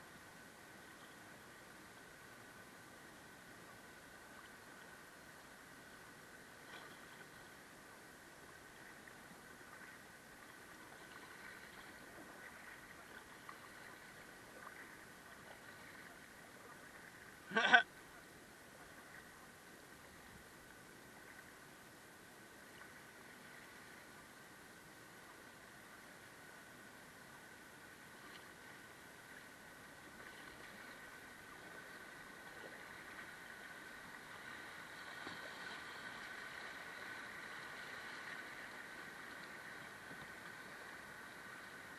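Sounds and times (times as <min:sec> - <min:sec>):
river water hissing around kayak: 0:00.0 - 0:41.9
river water rushing over rocks: 0:16.6 - 0:18.6
faint ticks: 0:28.2 - 0:28.6.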